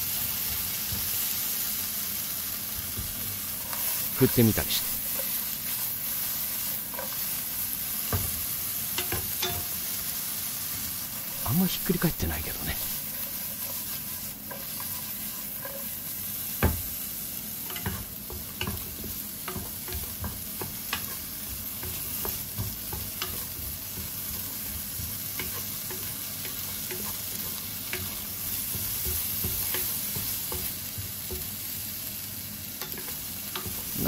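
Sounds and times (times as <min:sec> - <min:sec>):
potato slices sizzling in a pan: 0:00.0 - 0:34.0
wooden spatula scraping a pan: 0:12.9 - 0:16.1.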